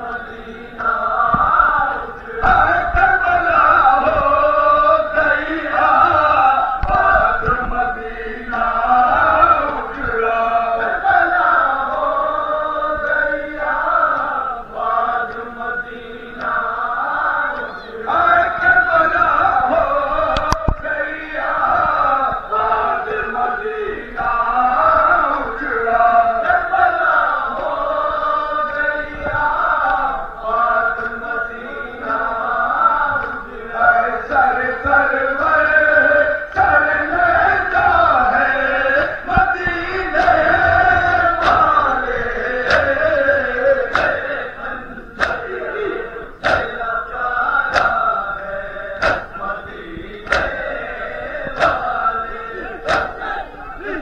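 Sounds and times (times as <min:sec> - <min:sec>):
men chanting a lament: 0:00.0 - 0:54.0
sharp click: 0:43.8 - 0:44.2, 0:45.2 - 0:45.4, 0:46.4 - 0:46.8, 0:47.7 - 0:48.0, 0:49.0 - 0:49.4.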